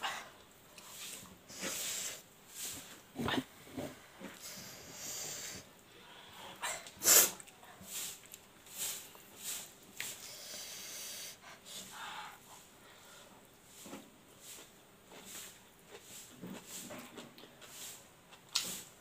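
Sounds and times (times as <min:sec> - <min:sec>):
noisy breaths: 0:01.4 - 0:07.2, 0:08.7 - 0:14.6.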